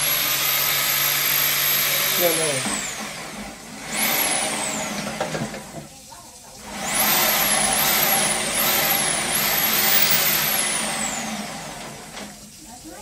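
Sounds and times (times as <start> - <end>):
water jet rushing hiss: 0.0 - 13.0
motor whine: 6.7 - 12.4.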